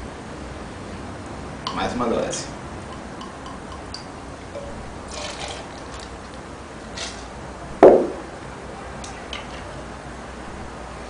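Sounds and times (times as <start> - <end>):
liquid trickling into metal: 2.9 - 7.4
loud knock: 7.8 - 8.3.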